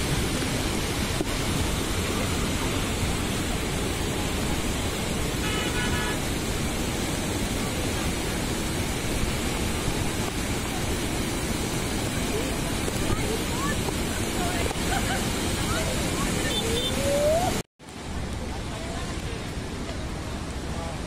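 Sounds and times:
water rushing over weir: 0.0 - 21.0
horn toot: 5.4 - 6.2.

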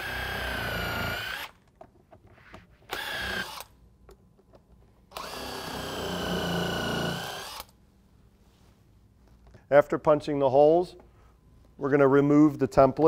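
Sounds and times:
impact wrench whining: 0.0 - 1.7, 2.9 - 3.8, 5.1 - 7.8.

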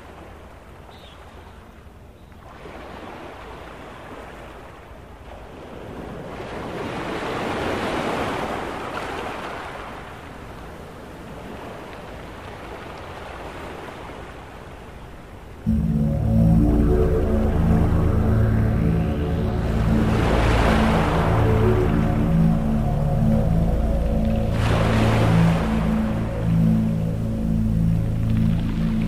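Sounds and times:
rushing noise: 15.7 - 29.0.

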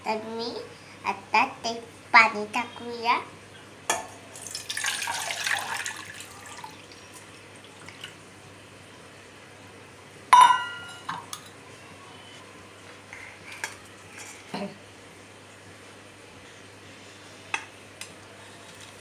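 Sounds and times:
water poured into saucepan: 4.4 - 7.0
metallic clang of kitchenware: 10.4 - 11.2.

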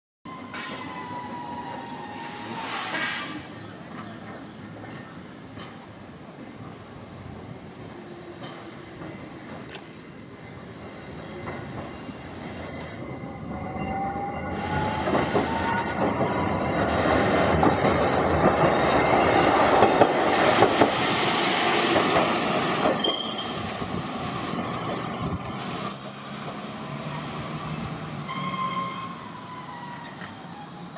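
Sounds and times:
streetcar whine: 0.3 - 30.9
high-pitched wheel squeals: 22.2 - 24.5, 25.2 - 30.8.

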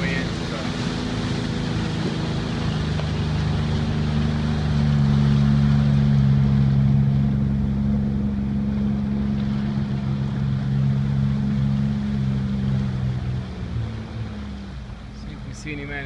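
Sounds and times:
jet ski engine running: 0.0 - 16.0.

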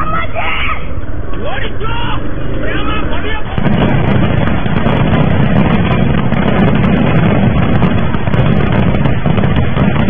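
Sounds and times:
firecrackers rushing and crackling: 2.2 - 10.0.

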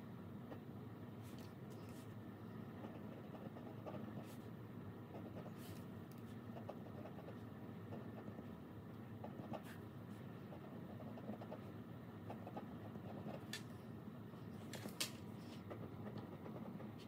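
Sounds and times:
low room hum: 0.0 - 17.0
pen scratching on paper: 2.7 - 4.5, 5.1 - 13.6, 15.4 - 17.0.

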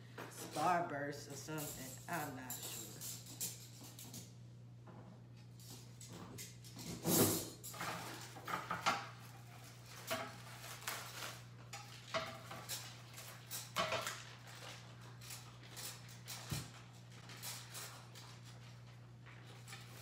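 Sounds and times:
plastic wrap crinkling: 9.1 - 20.0.

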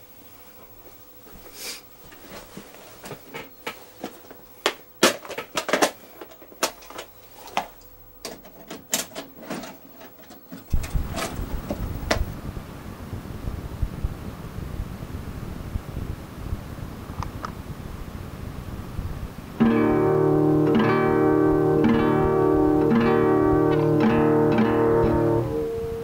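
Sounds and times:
hands handling hard plastic: 1.3 - 12.3.

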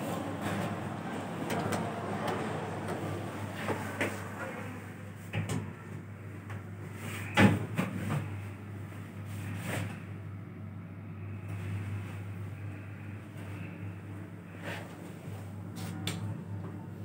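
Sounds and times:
elevator doors sliding shut: 0.0 - 5.0
low hum in elevator car: 0.0 - 17.0.

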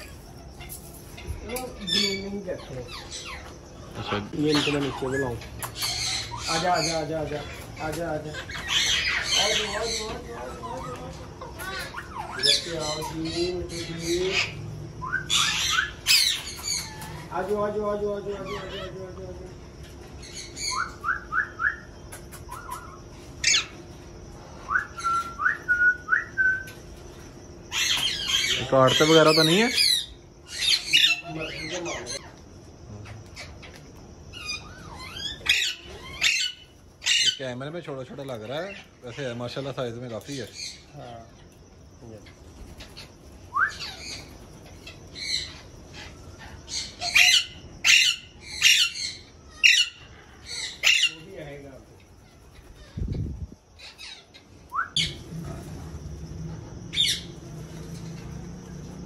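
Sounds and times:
parrots shrill squawks: 0.0 - 17.4, 22.5 - 23.8, 27.7 - 32.3, 34.3 - 37.4, 42.8 - 51.3
parrot rising whistle: 24.6 - 26.7, 43.5 - 43.9, 54.7 - 55.2.

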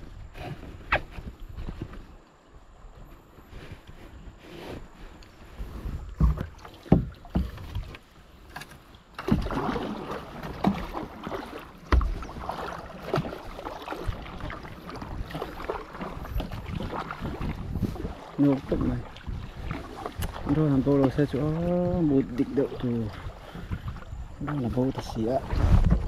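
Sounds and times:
paddle splashes: 0.0 - 26.0
rushing water: 5.4 - 26.0
paddle knocks: 6.1 - 26.0.

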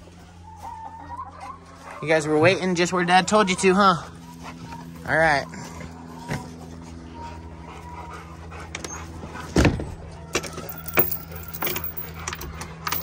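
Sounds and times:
metal chain latch clinking: 10.4 - 13.0.

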